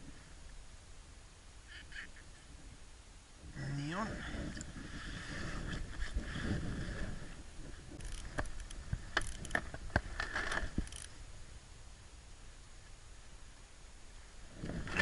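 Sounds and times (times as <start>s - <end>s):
fishing gear rustling: 4.6s - 11.1s.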